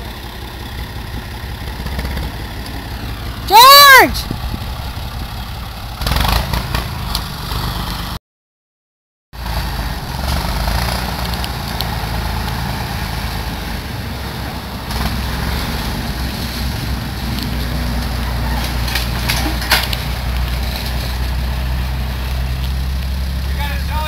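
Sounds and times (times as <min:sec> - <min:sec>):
backhoe engine running: 0:00.0 - 0:08.2, 0:09.4 - 0:24.0
wood cracking: 0:16.2 - 0:23.4.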